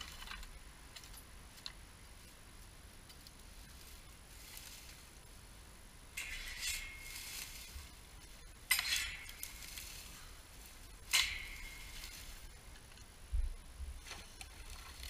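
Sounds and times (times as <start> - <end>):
rake scratching dry grass: 3.3 - 5.3, 6.2 - 12.9, 14.0 - 15.0.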